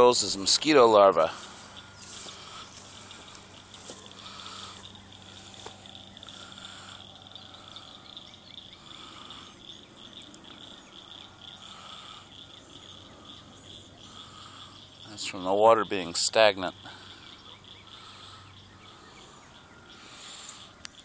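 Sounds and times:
insects pulsing high trill: 0.0s - 21.0s
short lower insect call: 0.0s - 21.0s.

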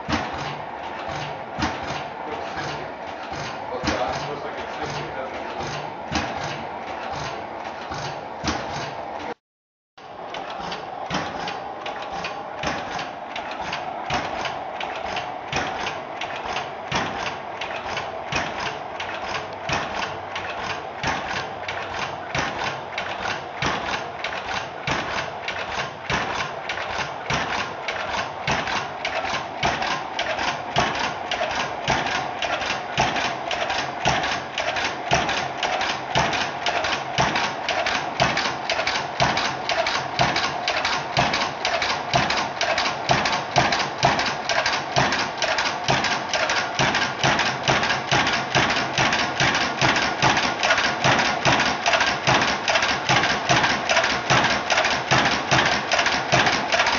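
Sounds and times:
engine compressor clattering: 0.0s - 9.4s, 10.0s - 56.9s
steady high hum: 0.0s - 9.4s, 10.0s - 46.0s.

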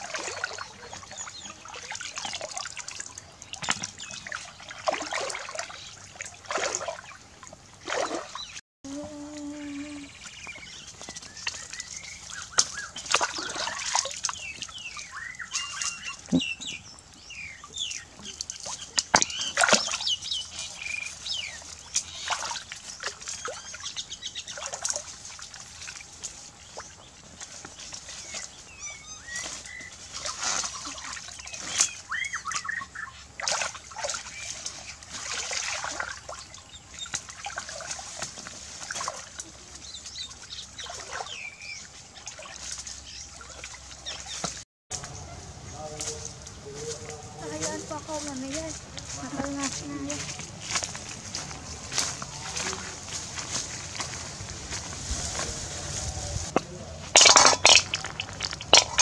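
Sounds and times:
water dripping: 0.0s - 8.4s, 10.2s - 28.5s, 33.4s - 45.2s, 56.5s - 59.0s
muddy water splashing and sloshing: 0.0s - 59.0s.

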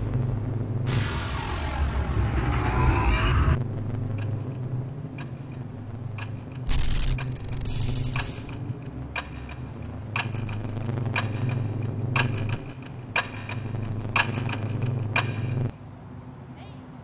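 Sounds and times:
steady low drone: 0.0s - 15.8s
clock-like ticking: 5.1s - 15.7s.

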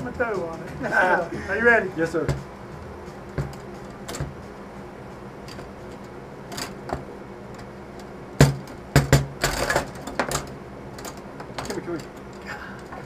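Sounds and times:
foosball knocks and clicks: 3.3s - 4.5s, 8.4s - 12.3s
loud foosball hits: 3.4s - 4.4s, 8.4s - 10.4s.

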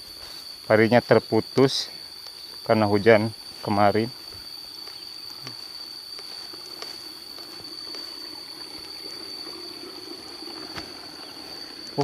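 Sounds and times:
high-pitched insect drone: 0.0s - 12.0s
water trickling in ditch: 3.0s - 12.0s.

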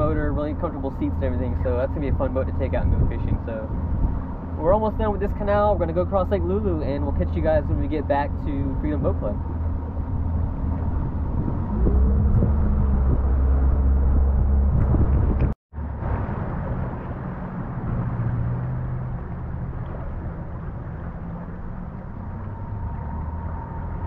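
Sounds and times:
outboard motor rumbling: 0.0s - 24.0s.

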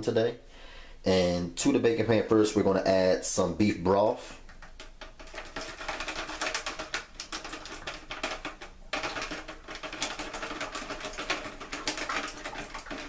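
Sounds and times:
broth pouring into foil pan: 5.2s - 13.0s.

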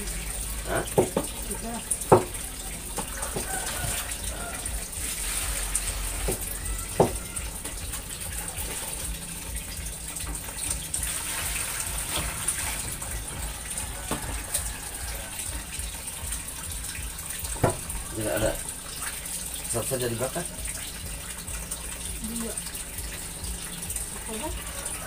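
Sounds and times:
running water: 0.0s - 25.0s
knife knocking on cutting board: 0.9s - 1.4s, 2.1s - 2.4s, 7.0s - 7.2s, 17.6s - 17.8s.

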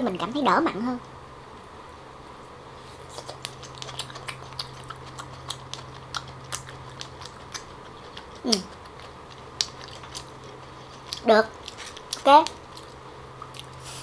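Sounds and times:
close chewing with wet clicks: 3.0s - 13.8s.

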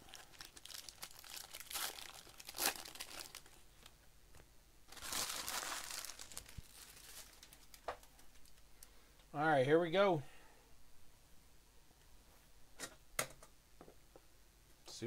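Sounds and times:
plastic wrappers crinkling: 0.0s - 4.0s, 4.9s - 8.7s.

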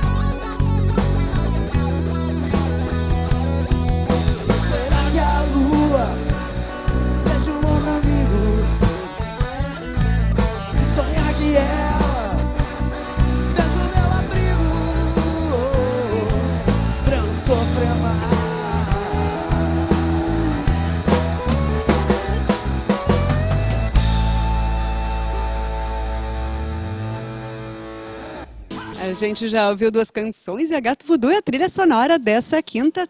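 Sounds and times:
drum kit: 0.0s - 26.2s, 28.1s - 29.7s
electric guitars: 0.0s - 29.7s
bass guitar: 0.0s - 30.0s
man singing lead vocals: 4.3s - 9.2s, 10.7s - 21.6s.

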